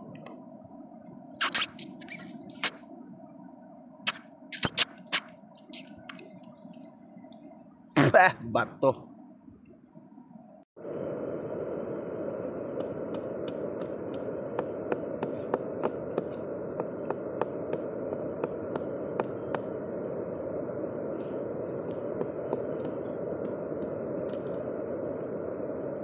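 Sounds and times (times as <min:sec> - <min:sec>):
steady rushing noise: 0:10.2 - 0:26.0.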